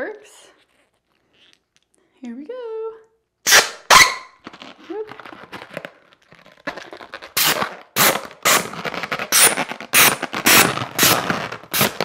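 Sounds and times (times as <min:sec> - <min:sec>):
hand balloon pump strokes: 0:03.5 - 0:12.0.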